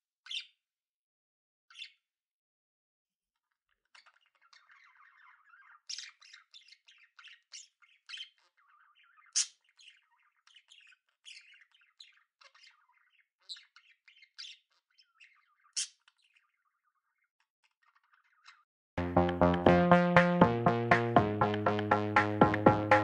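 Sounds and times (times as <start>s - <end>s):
budgerigars chattering: 4.0s - 14.6s
sharp bird calls: 4.0s - 16.6s.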